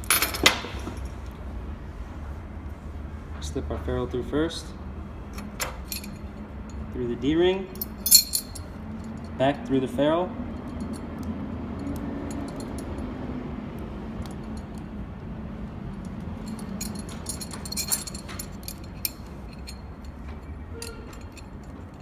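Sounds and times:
metal cable clinking and rattling: 5.3 - 6.9, 7.7 - 9.4, 10.5 - 13.1, 14.2 - 14.9, 15.6 - 22.0.

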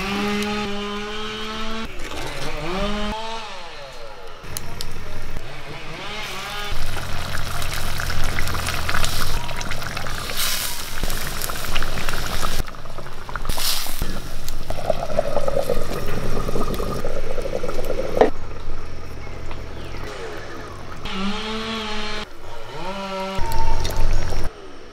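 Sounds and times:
curry bubbling in a pot: 6.8 - 18.3.

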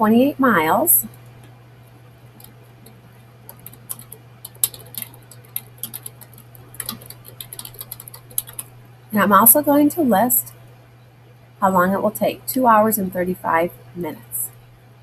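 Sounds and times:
typing on computer keyboard: 2.4 - 8.7.

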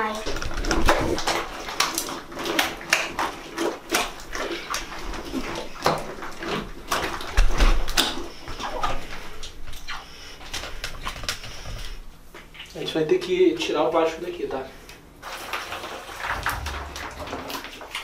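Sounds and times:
slime squelching and slapping: 0.0 - 13.0, 15.3 - 18.0
slime thud: 16.3 - 17.6.

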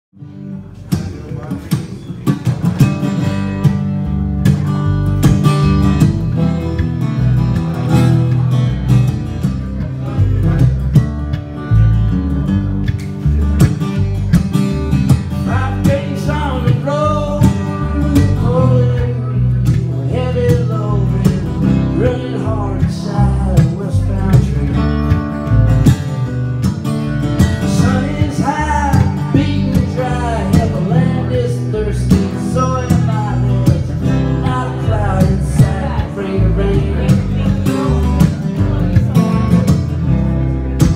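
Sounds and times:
acoustic guitar: 0.1 - 40.9
man singing: 15.2 - 25.5, 27.5 - 40.2.

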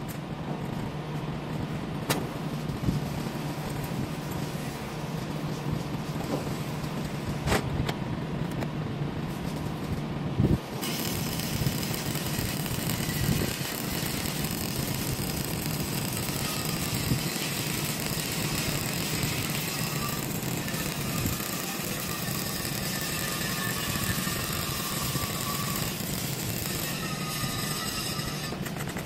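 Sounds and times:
welding arc crackling: 2.3 - 7.4, 9.3 - 29.0.

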